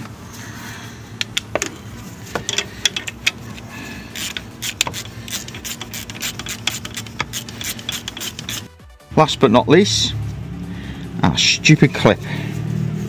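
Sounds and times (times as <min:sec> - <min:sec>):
ratchet metallic clicks: 0:01.2 - 0:08.8.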